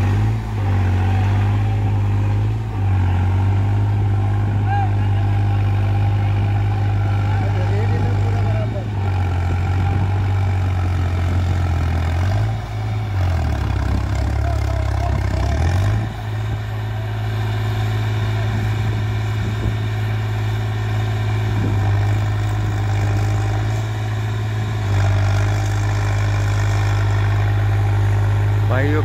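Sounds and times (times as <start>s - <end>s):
tractor engine idling: 0.0s - 29.0s.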